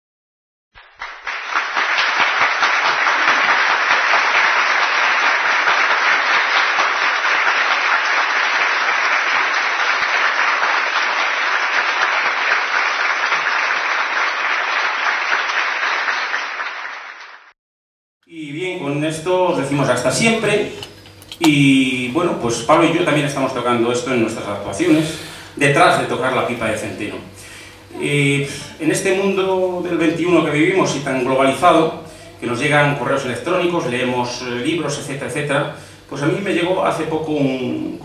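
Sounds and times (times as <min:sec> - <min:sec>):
audience applauding: 0:00.8 - 0:17.5.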